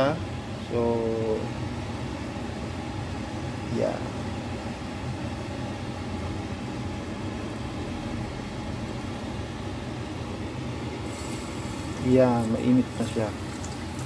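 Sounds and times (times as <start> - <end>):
steady low hum: 0.0 - 14.0
frying oil sizzling: 10.7 - 14.0.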